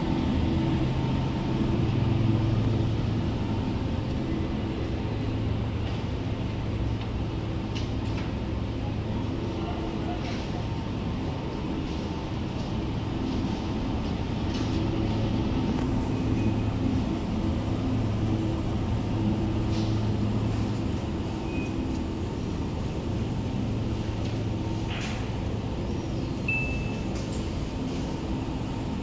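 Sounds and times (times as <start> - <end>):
low mechanical hum: 0.0 - 29.0
short high beeps: 26.5 - 27.1.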